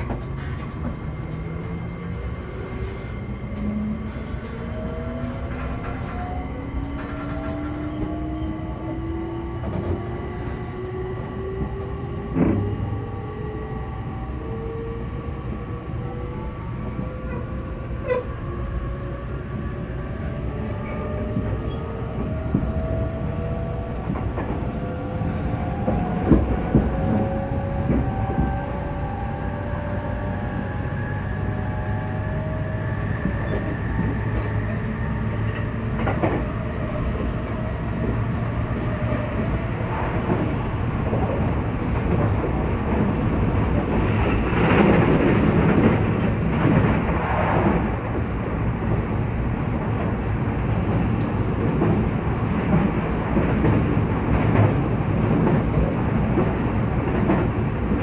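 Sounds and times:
train motor whine: 0.0 - 19.4
knocks from train running gear: 12.4 - 12.7.

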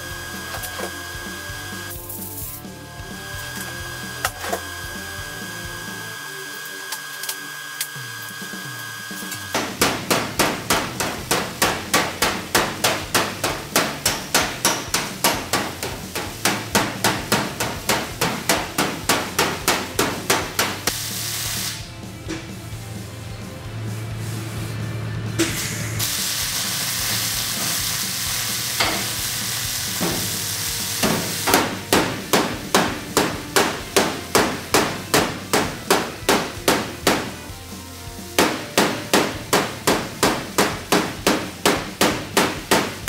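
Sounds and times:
hammer strikes on metal panel: 9.5 - 21.0, 28.8 - 29.1, 31.0 - 37.4, 38.4 - 43.0
short hiss: 20.9 - 21.9, 25.4 - 31.5.

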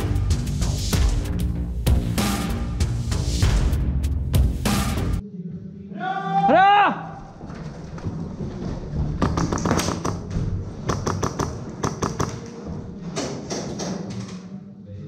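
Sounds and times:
background music: 0.0 - 6.7, 9.1 - 15.0
sharp clicks and taps: 10.9 - 12.5.

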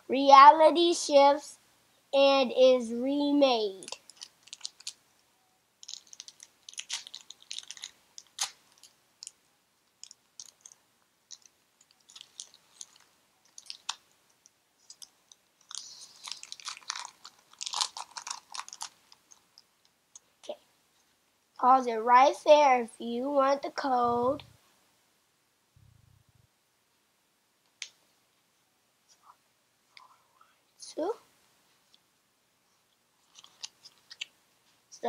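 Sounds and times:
foil wrapper tearing and crinkling: 3.8 - 5.0, 5.8 - 9.4, 10.0 - 14.0, 14.9 - 19.4, 33.2 - 34.3.

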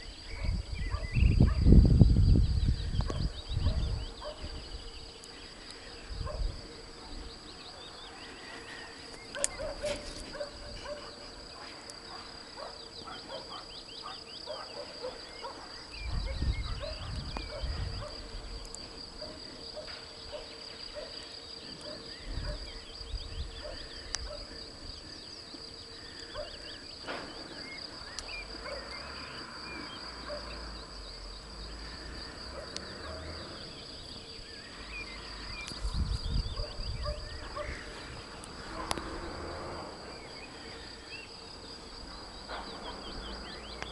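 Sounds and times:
pulsing insect trill: 0.0 - 43.9
small birds chirping: 0.0 - 43.9
low rumbles on microphone: 0.3 - 4.8, 16.0 - 18.7, 35.8 - 39.3.

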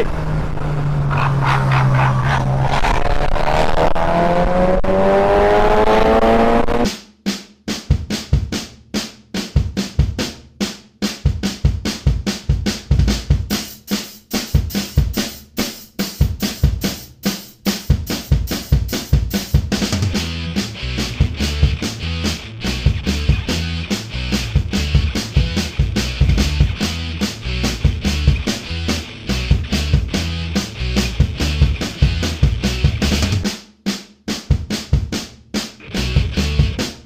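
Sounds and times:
wind rush: 0.0 - 4.8
motorcycle engine revving: 0.0 - 6.9
drum-led rock music: 5.0 - 37.0.

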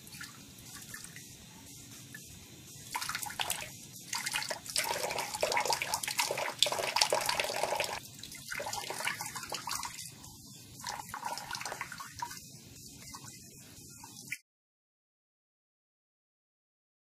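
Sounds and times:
tap water running into sink: 2.9 - 10.0, 10.8 - 12.4
water splashing: 2.9 - 10.0.

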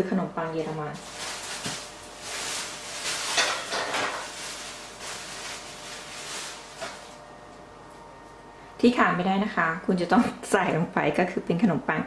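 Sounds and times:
kitchen items rustling and clattering: 0.6 - 7.2.

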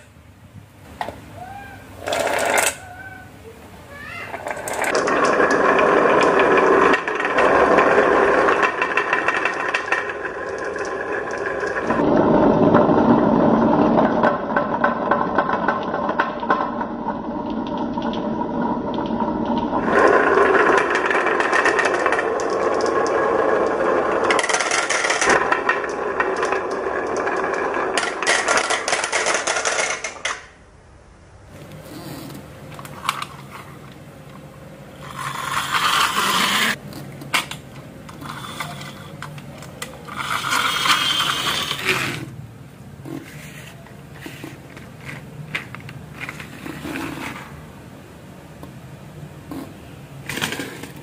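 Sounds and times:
marbles rolling and clattering: 2.0 - 3.0, 4.3 - 30.6, 35.0 - 42.4, 43.1 - 47.5, 49.5 - 51.0.

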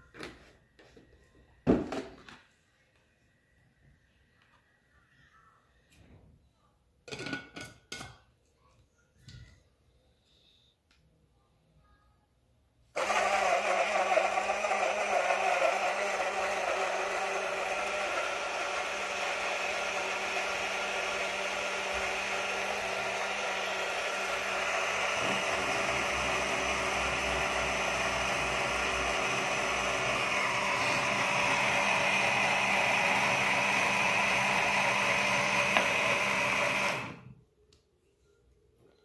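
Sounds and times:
portable blender whirring: 12.9 - 37.4.

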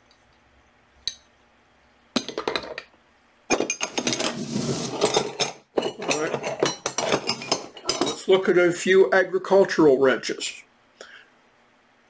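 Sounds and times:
metal wrenches clinking: 3.5 - 8.3.

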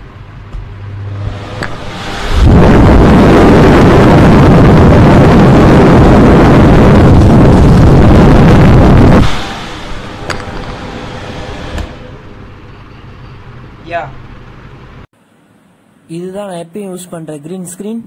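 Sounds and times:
air cooler fan humming: 0.0 - 18.0
wind buffeting on microphone: 1.3 - 11.7.

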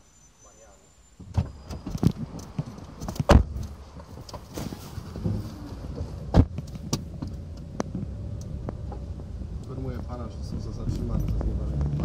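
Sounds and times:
microphone handling rubbing and knocks: 1.2 - 9.1.

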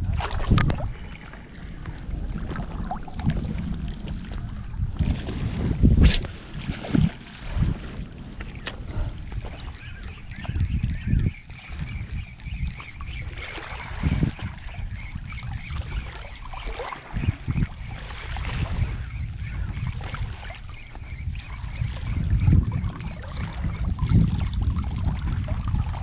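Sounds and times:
water sloshing: 0.0 - 19.2
wind buffeting microphone: 0.0 - 26.0.

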